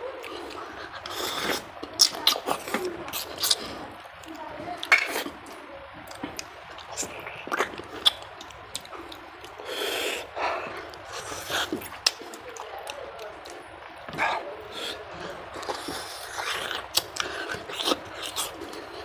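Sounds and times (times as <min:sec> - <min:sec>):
man chewing wetly: 0:00.0 - 0:19.0
sharp mouth clicks: 0:06.1 - 0:10.3.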